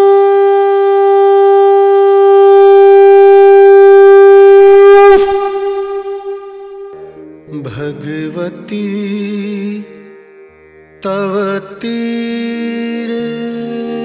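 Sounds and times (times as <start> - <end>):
conch shell blown: 0.0 - 7.3.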